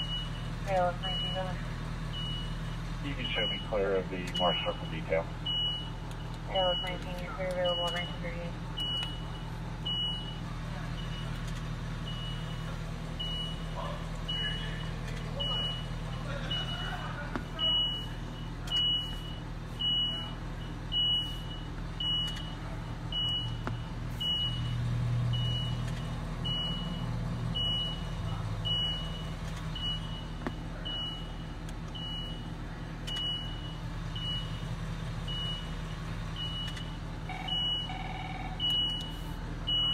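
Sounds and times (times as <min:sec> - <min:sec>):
backup alarm beeping: 0:00.0 - 0:11.4, 0:12.1 - 0:39.9
engine idling: 0:00.0 - 0:39.9
lower alarm tone: 0:36.4 - 0:39.9.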